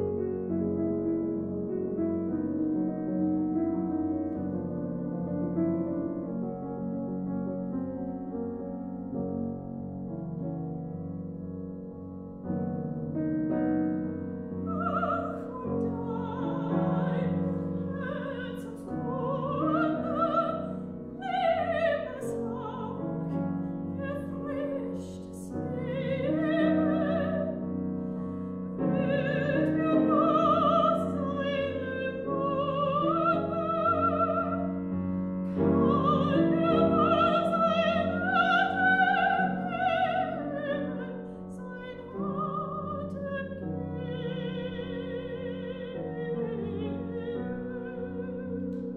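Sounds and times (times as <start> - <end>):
grand piano: 0.0 - 48.9
soprano singing with vibrato: 14.6 - 27.7, 28.8 - 48.9.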